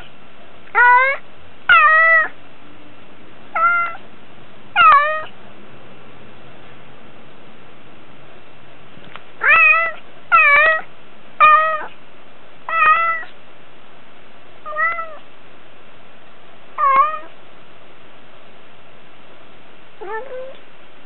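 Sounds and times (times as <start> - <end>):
cat meowing: 0.7 - 2.3, 3.6 - 4.0, 4.8 - 5.3, 9.4 - 12.0, 12.7 - 13.3, 14.6 - 15.2, 16.8 - 17.4, 20.0 - 20.6.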